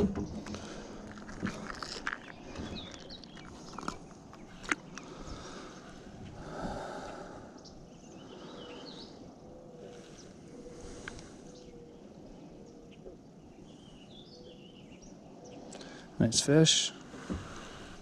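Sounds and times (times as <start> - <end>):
handling clicks knocks and scrapes: 0.0 - 5.1.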